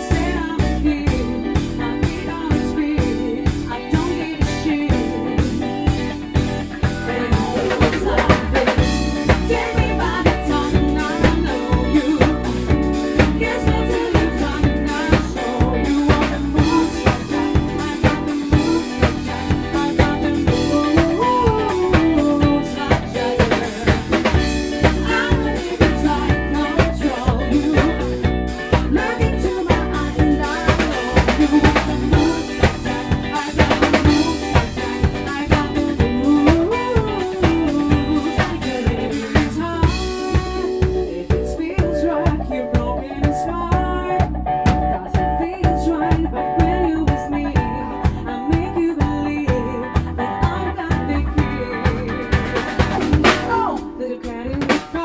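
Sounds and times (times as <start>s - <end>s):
drum kit beat: 0.0s - 55.0s
live band playing: 0.0s - 55.0s
women singing: 0.0s - 55.0s.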